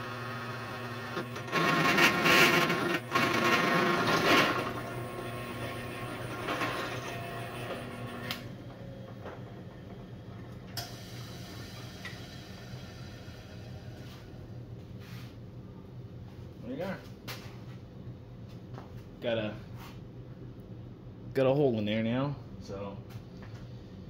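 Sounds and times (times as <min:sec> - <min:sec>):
power drill boring steel: 0:00.0 - 0:08.5
steady low hum: 0:04.6 - 0:24.0.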